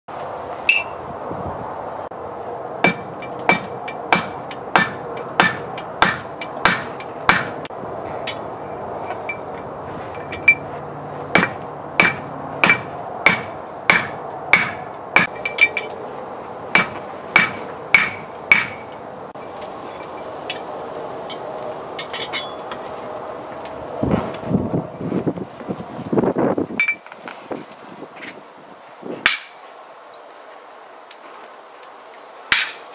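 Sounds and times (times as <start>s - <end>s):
hammer striking metal on anvil: 0.7s - 1.0s, 2.8s - 7.6s, 11.3s - 15.9s, 16.8s - 18.9s, 29.3s - 29.6s, 32.5s - 32.8s
metal taps and clinks: 0.7s - 1.0s, 10.2s - 10.7s.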